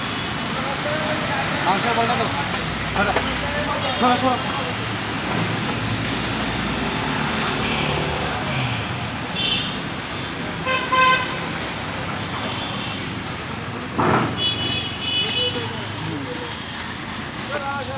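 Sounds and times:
busy street traffic: 0:00.0 - 0:17.9
vehicle horns tooting: 0:09.4 - 0:09.8, 0:10.6 - 0:11.6, 0:14.2 - 0:16.1.

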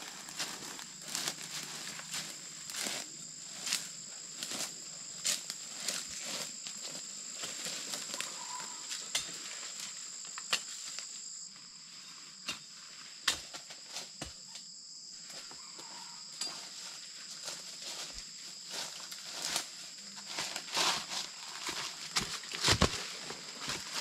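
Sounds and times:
snaps and crunches in dry leaves: 0:00.0 - 0:11.1, 0:18.7 - 0:24.0
insect chorus: 0:00.0 - 0:24.0.

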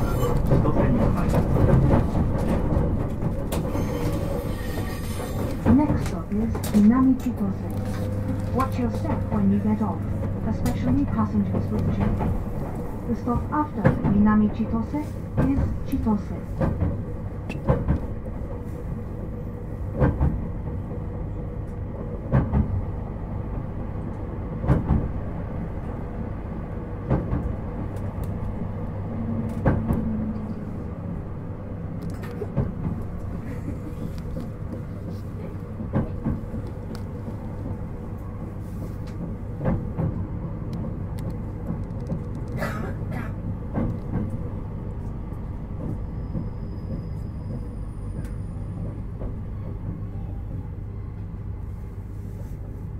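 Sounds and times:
train running low rumble: 0:00.0 - 0:52.9.

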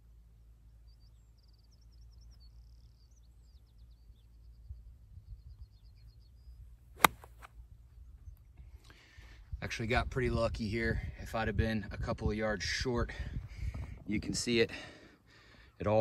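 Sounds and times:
low wind rumble: 0:03.5 - 0:14.8
golf club striking ball: 0:07.0 - 0:07.5.

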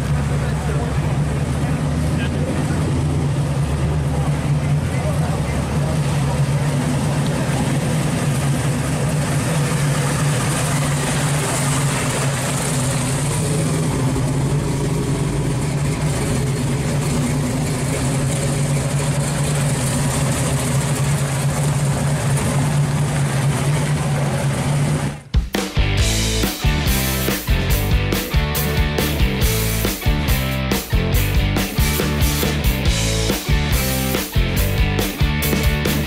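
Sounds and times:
car engine idling: 0:00.0 - 0:36.0.

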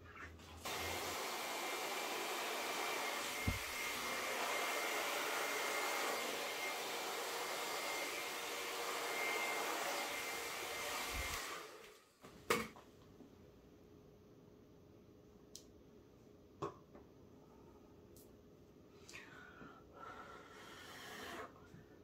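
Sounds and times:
blow dryer running: 0:00.6 - 0:12.0.

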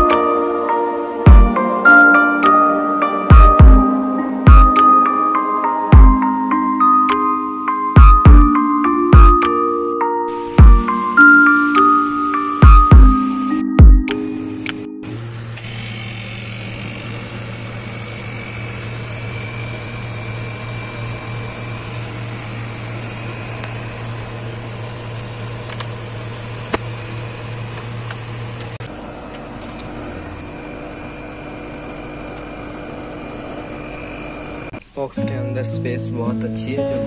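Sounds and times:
higher steady hum: 0:00.0 - 0:27.6
freezer compressor humming: 0:00.0 - 0:35.4.

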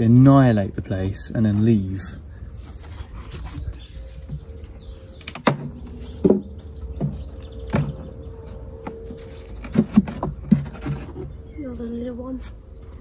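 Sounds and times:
birds chirping faintly: 0:00.0 - 0:13.0
hive tool knocking on frames: 0:05.3 - 0:08.2.

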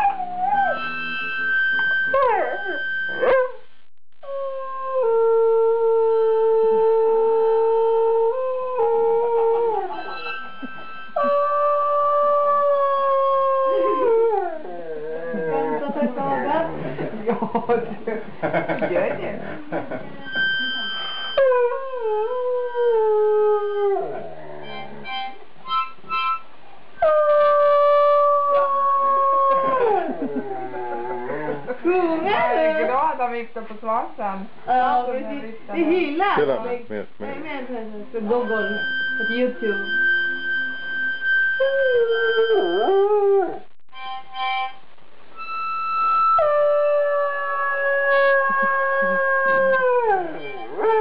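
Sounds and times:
dog howling: 0:00.0 - 0:01.0, 0:04.2 - 0:10.5, 0:11.2 - 0:16.0, 0:21.4 - 0:24.7, 0:27.0 - 0:31.7, 0:41.6 - 0:43.6, 0:46.4 - 0:51.0
harmonica chords: 0:00.6 - 0:03.4, 0:09.9 - 0:12.0, 0:20.1 - 0:21.4, 0:24.6 - 0:26.5, 0:38.2 - 0:43.2, 0:43.9 - 0:47.0.

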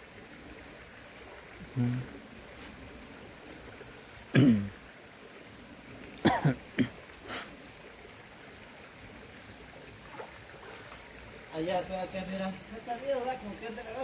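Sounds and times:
faint hiss of water: 0:00.0 - 0:14.0
breathy vocal sound: 0:01.6 - 0:02.2
cough-like vocal sounds: 0:04.3 - 0:04.8, 0:06.2 - 0:07.0.

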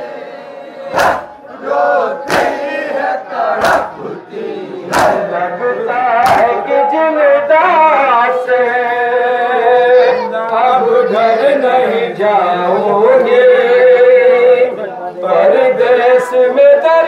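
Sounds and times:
hands beating chests: 0:00.9 - 0:01.4, 0:02.2 - 0:02.6, 0:03.6 - 0:04.0, 0:04.9 - 0:05.3, 0:06.2 - 0:06.6
man singing a lament: 0:04.8 - 0:17.0.

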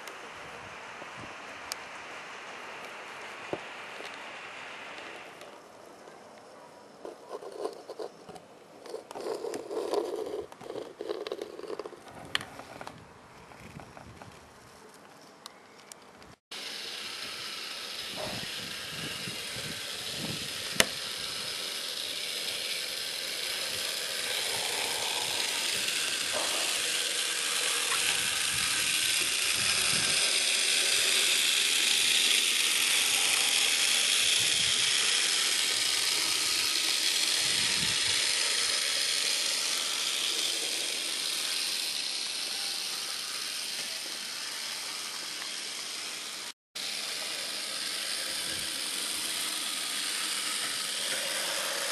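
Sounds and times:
model train motor whirring: 0:00.0 - 0:05.7, 0:07.0 - 0:14.3, 0:16.5 - 0:51.9
sharp click: 0:20.7 - 0:21.0.

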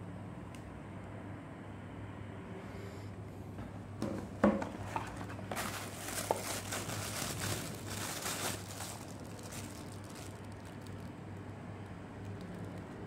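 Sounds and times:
low steady hum: 0:00.0 - 0:13.0
plastic bag crinkling: 0:04.8 - 0:11.6.

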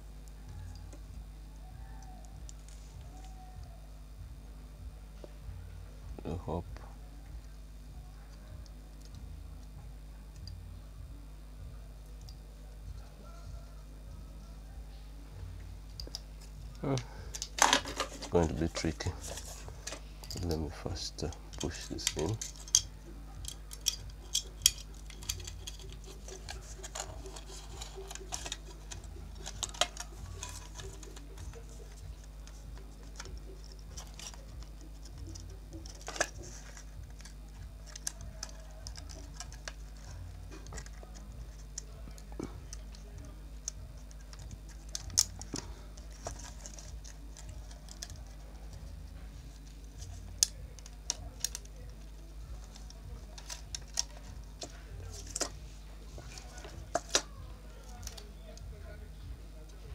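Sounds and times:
steady low hum: 0:00.0 - 0:59.9
fingers clicking on plastic: 0:21.2 - 0:48.9.

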